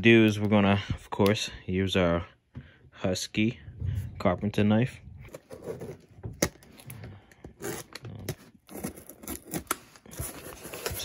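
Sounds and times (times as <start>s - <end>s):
knife slitting packing tape: 7.6s - 11.0s.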